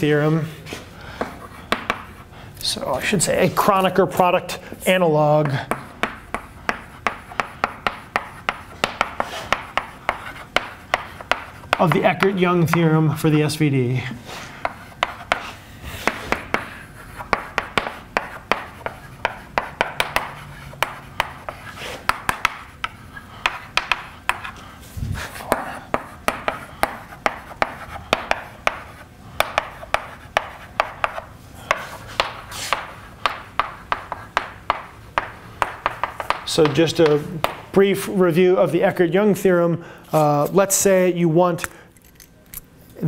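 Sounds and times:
chalk tapping and scratching: 0:00.7 - 0:03.9, 0:05.4 - 0:12.8, 0:14.3 - 0:37.6.

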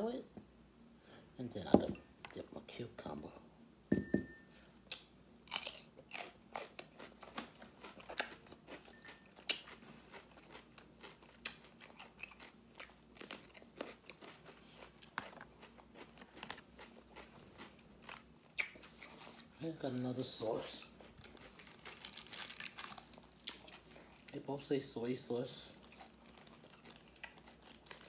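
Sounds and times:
chewing crunchy food: 0:04.9 - 0:19.6, 0:20.4 - 0:24.6, 0:25.6 - 0:28.0.

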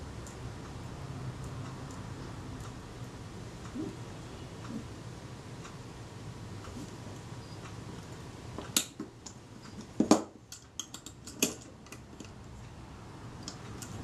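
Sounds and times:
small metallic clicks and taps: 0:08.6 - 0:12.4.

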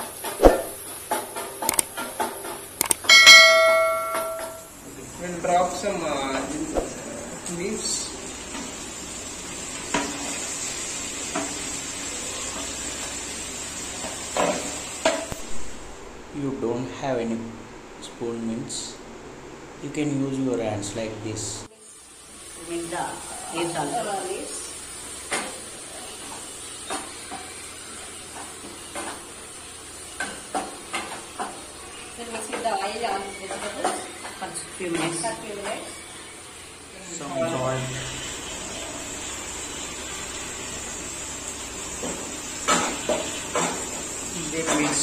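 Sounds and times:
food sizzling in oil: 0:00.0 - 0:16.2, 0:21.6 - 0:45.0.

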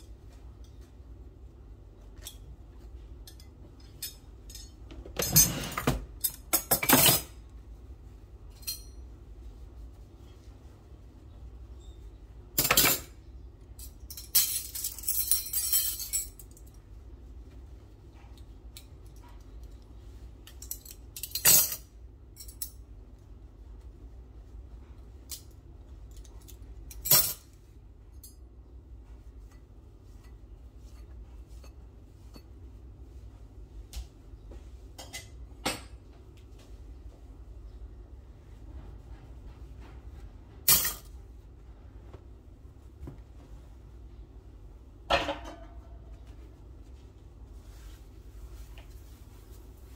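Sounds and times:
metal cutlery clinking: 0:14.1 - 0:16.4, 0:40.7 - 0:41.1.

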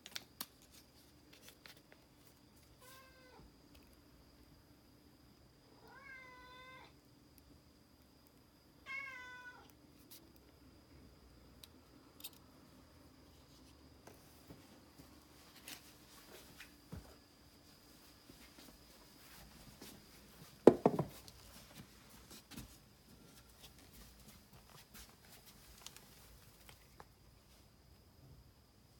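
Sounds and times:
louder knocks: 0:20.6 - 0:21.1.

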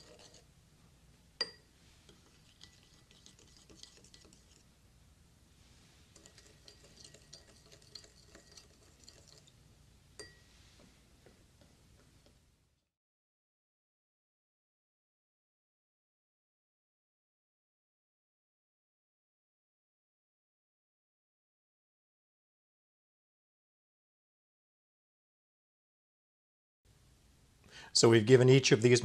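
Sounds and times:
spoon stirring water in bowl: 0:00.0 - 0:00.5, 0:01.4 - 0:04.7, 0:06.0 - 0:09.6, 0:10.2 - 0:10.6
spoon clinking against glass: 0:01.4 - 0:01.7, 0:10.2 - 0:10.5.

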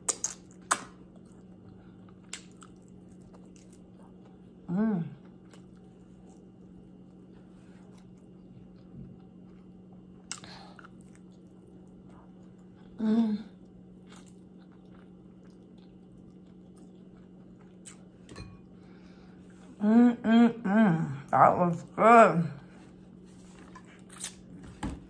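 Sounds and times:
chewing and mouth clicks: 0:00.0 - 0:04.6, 0:05.2 - 0:13.0, 0:13.6 - 0:18.3
steady low hum: 0:00.0 - 0:25.0
person humming mmm: 0:04.6 - 0:05.3, 0:12.9 - 0:13.6, 0:19.7 - 0:21.3.

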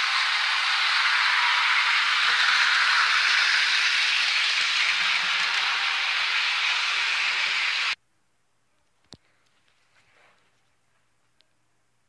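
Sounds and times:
model train running on track: 0:00.0 - 0:08.0.

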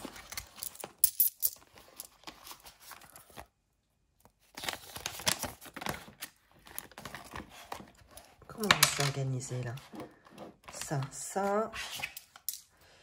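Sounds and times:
banknotes rustling: 0:04.2 - 0:11.6.

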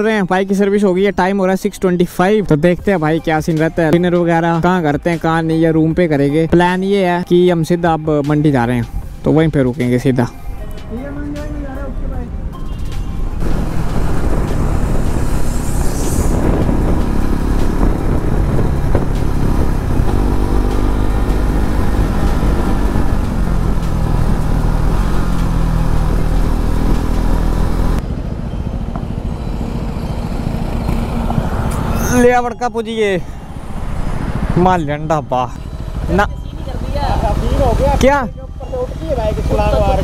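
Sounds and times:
motorcycle engine running: 0:12.7 - 0:32.0, 0:33.2 - 0:40.0
wind noise on microphone: 0:12.8 - 0:29.8, 0:33.5 - 0:35.0.

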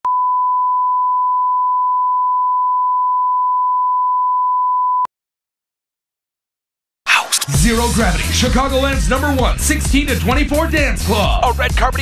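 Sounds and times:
steady test tone beep: 0:00.1 - 0:05.1.

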